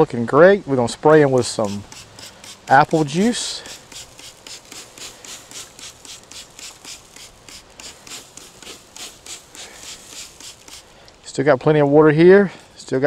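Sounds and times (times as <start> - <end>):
spray bottle hissing: 1.2 - 11.0.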